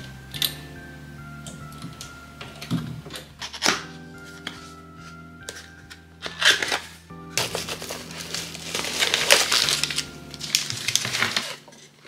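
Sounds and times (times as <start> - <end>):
soft background music: 0.0 - 12.0
packaging rustling and crinkling: 5.5 - 12.0.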